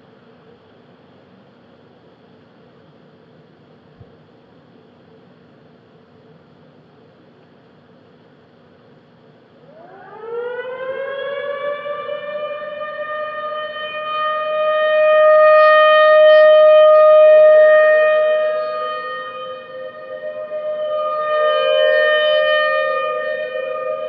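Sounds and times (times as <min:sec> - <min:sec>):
second lower siren tone: 0:09.6 - 0:24.0
warning siren wailing: 0:09.6 - 0:24.0.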